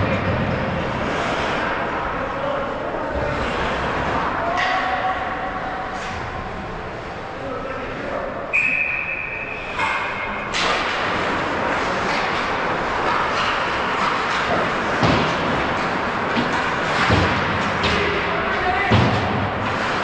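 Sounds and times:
skates scraping ice: 0.0 - 4.5, 10.5 - 20.0
sticks and puck knocking: 12.0 - 18.3.

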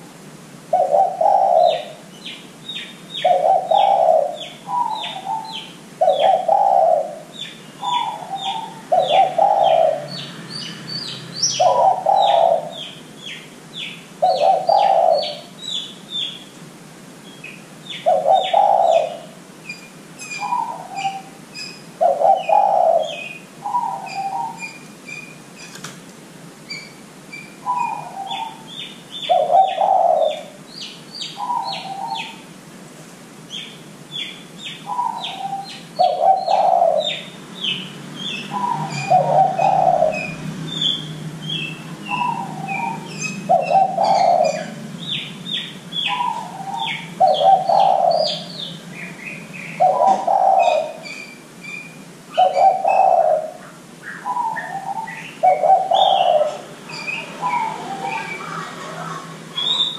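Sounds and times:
dove cooing: 0.7 - 2.1, 3.2 - 10.2, 11.4 - 13.0, 14.2 - 15.8, 17.9 - 19.4, 20.3 - 21.4, 22.0 - 24.8, 27.6 - 30.6, 31.4 - 32.5, 34.8 - 37.3, 38.3 - 51.2, 52.3 - 59.9
small birds chirping: 0.7 - 16.6, 17.2 - 25.9, 26.6 - 32.5, 33.4 - 59.9.

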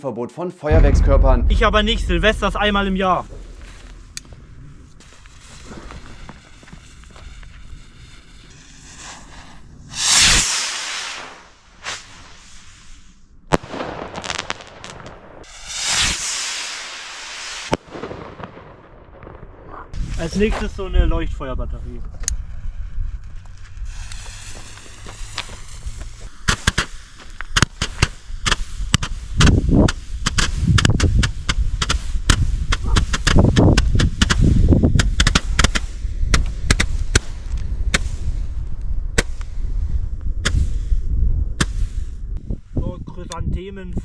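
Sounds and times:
fireworks cracks and thumps: 0.7 - 7.7, 13.5 - 15.2, 23.5 - 38.2
fuse hissing: 1.9 - 13.2, 23.8 - 27.6.

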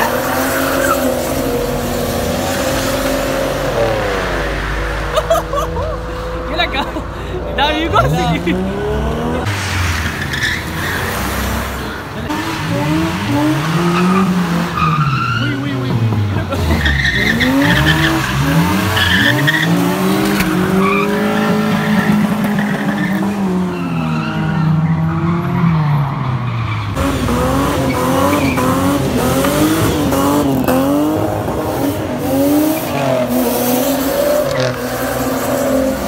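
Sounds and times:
tyres squealing: 0.0 - 3.9, 10.1 - 27.0
car engines revving: 0.0 - 36.0.

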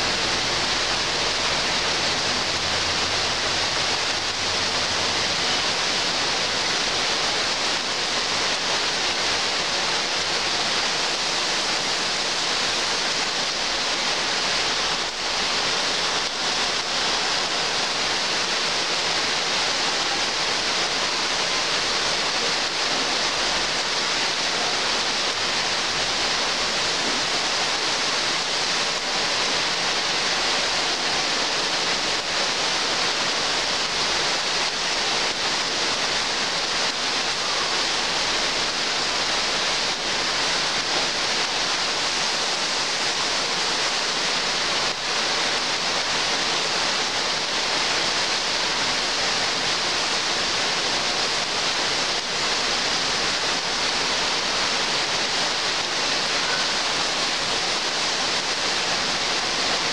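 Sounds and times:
heavy rain on trees: 0.0 - 59.9.

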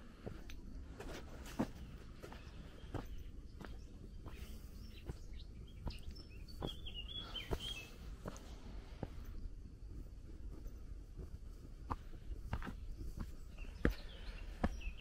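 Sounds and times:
footsteps on dirt trail: 0.0 - 15.0
small bird chirping: 1.8 - 8.8, 12.1 - 15.0.

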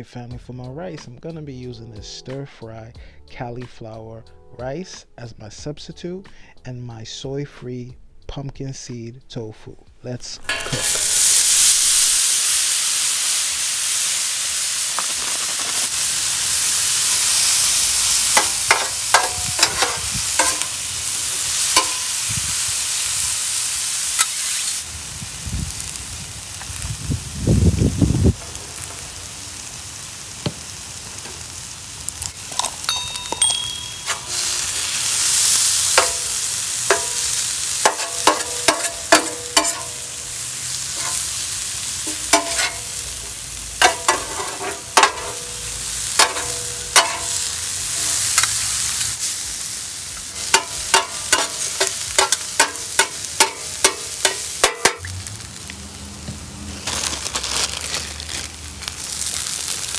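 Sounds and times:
metal spatulas scraping and clacking: 10.5 - 11.2, 18.3 - 20.8, 21.8 - 22.1, 33.1 - 34.8, 35.9 - 40.1, 40.9 - 41.3, 42.1 - 42.9, 43.8 - 45.6, 46.2 - 48.6, 50.4 - 55.0
food sizzling on a griddle: 10.5 - 59.9.

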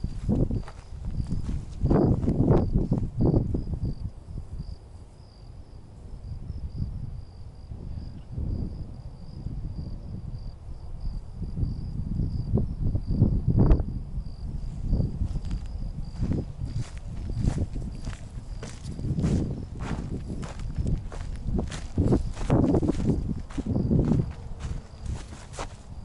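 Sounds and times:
footsteps through grass: 0.0 - 3.1, 14.7 - 26.0
high-pitched insect trill: 0.0 - 26.0.

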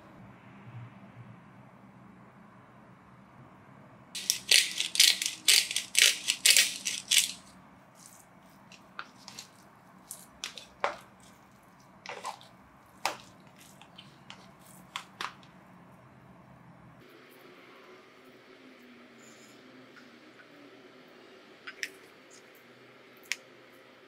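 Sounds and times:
pepper grinder grinding: 4.2 - 11.3
metal spoon stirring in plastic tub: 4.2 - 15.5.

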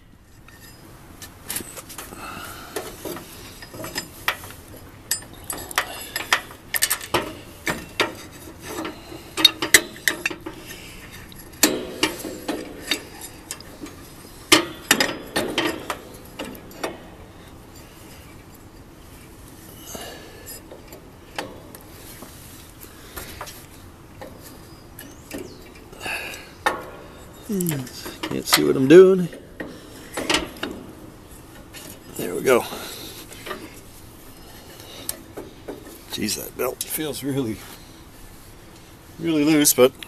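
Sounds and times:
metallic clicks and knocks of tools: 2.8 - 17.1.

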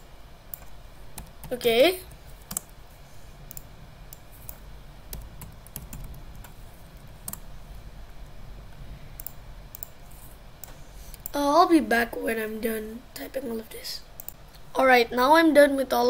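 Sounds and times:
keyboard keystrokes: 0.5 - 2.7, 7.2 - 7.4
mouse clicks: 3.5 - 4.6, 9.2 - 10.0, 10.6 - 11.4, 14.2 - 14.4.

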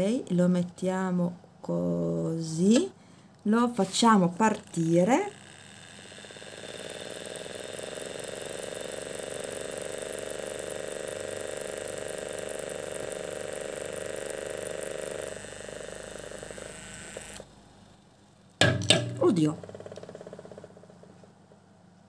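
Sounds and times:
electric motor whirring: 4.4 - 17.5.

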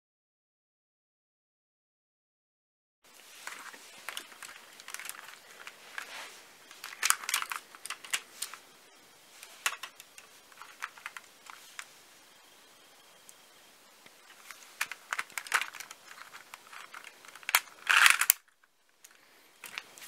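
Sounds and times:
plastic bricks clicking and rattling: 3.3 - 8.6, 9.4 - 11.9, 14.1 - 20.0.

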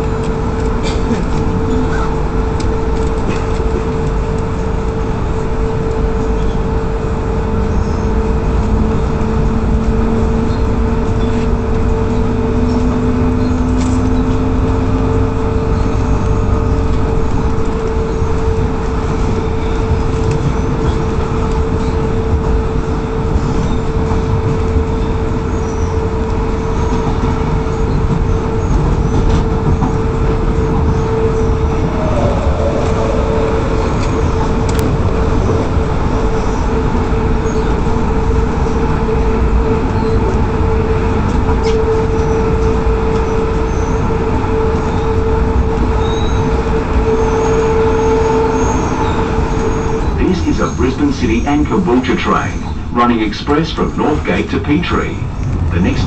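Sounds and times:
constant hum: 0.0 - 56.0
train wheels rumbling on rails: 0.0 - 56.0
rising whine: 30.6 - 36.4.

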